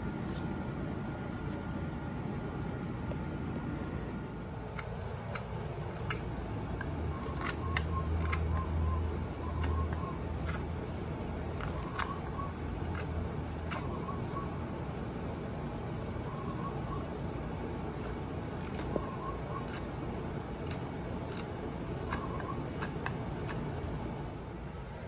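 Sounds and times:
low steady hum: 0.0s - 25.0s
knife cutting wood: 4.6s - 14.4s, 17.9s - 23.8s.

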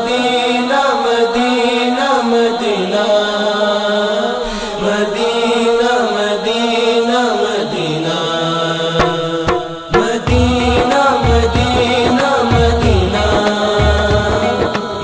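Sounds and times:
male chorus chanting: 0.0s - 15.0s.

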